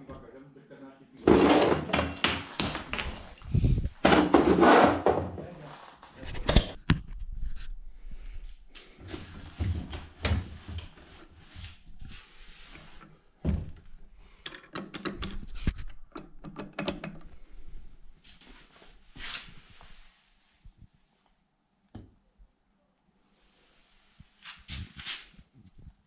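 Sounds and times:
objects knocking and scraping: 1.2 - 7.6.

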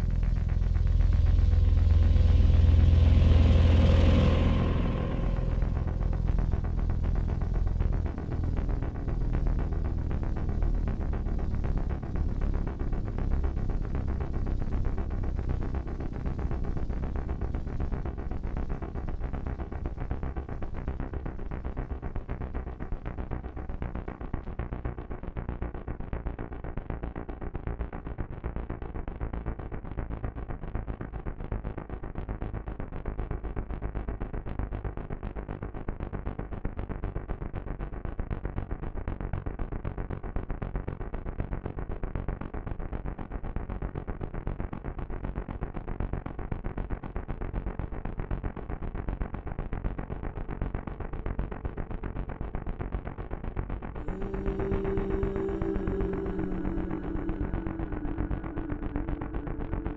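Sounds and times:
pulsing distorted synthesiser: 0.0 - 20.1, 54.0 - 59.9
low synth bass notes: 0.0 - 59.9
held synth tones: 54.0 - 59.9.

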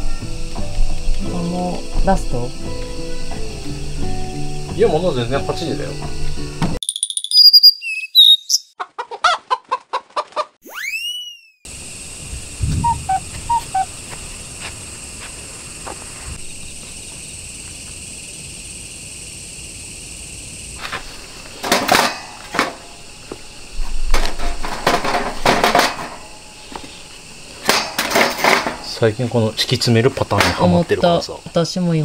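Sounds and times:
insects chirping: 0.0 - 8.8, 10.7 - 32.0
firewood clattering in metal fire pit: 20.8 - 23.0, 24.0 - 26.4, 27.5 - 29.0, 30.2 - 30.9.

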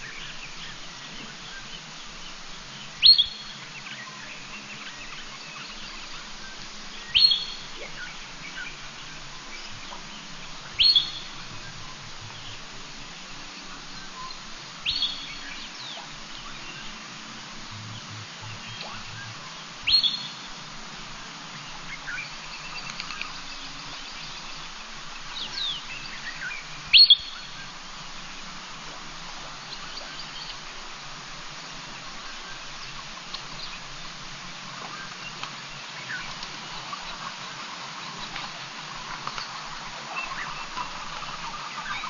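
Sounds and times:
background hiss: 0.0 - 42.0
upward-sweeping bird calls: 2.7 - 12.6, 13.2 - 17.0, 17.8 - 20.6, 21.6 - 30.7, 34.8 - 42.0
bird chirps and whistles: 3.0 - 3.6, 10.8 - 11.3, 26.5 - 27.6.

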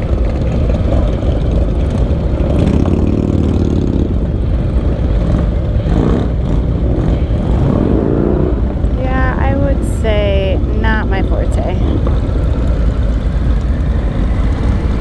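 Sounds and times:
motorcycle engine revving: 0.0 - 9.0
motorcycle engine running at low speed: 0.0 - 9.8, 11.5 - 15.0
other motorcycle engines: 0.0 - 15.0.

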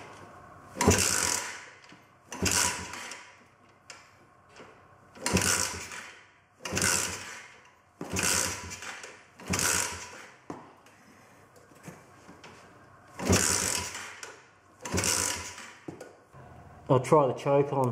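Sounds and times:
small engine turning over: 0.8 - 1.7, 2.3 - 3.2, 5.2 - 10.3, 13.2 - 15.8.

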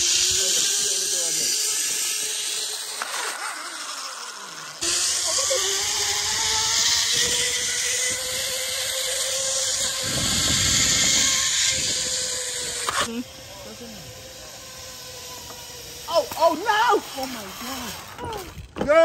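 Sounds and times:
zip-line trolley whirring: 0.0 - 19.0
wind buffeting microphone: 9.6 - 12.8.

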